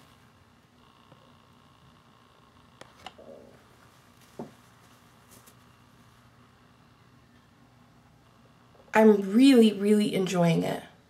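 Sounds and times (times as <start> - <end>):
fabric rustling: 3.3 - 6.4.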